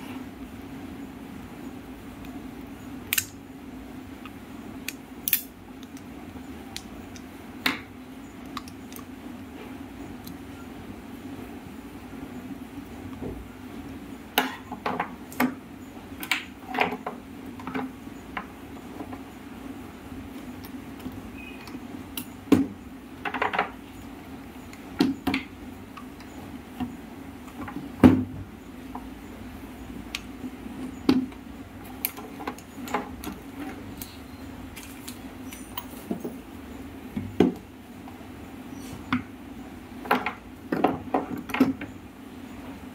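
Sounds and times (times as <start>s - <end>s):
steady low hum: 0.0s - 42.9s
fan parts clicking and knocking: 14.2s - 19.4s, 20.3s - 23.9s, 24.6s - 34.0s, 40.0s - 42.0s.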